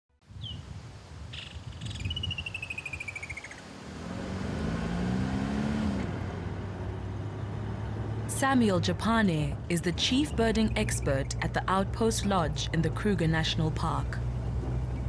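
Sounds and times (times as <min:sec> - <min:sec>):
bird call with descending trill: 0:01.3 - 0:03.6
vehicle engine running low: 0:03.7 - 0:15.0.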